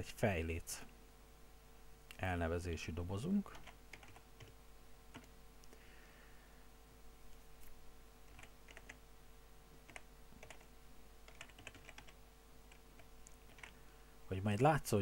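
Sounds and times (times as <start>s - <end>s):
faint keyboard typing: 3.5s - 5.8s, 7.3s - 9.0s, 9.8s - 13.9s.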